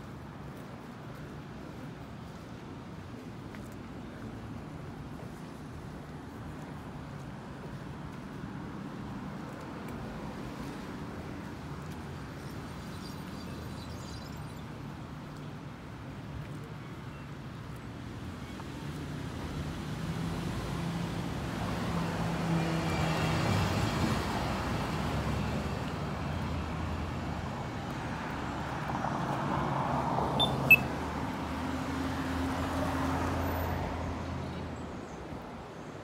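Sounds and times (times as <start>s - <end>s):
cars passing: 19.2s - 35.7s.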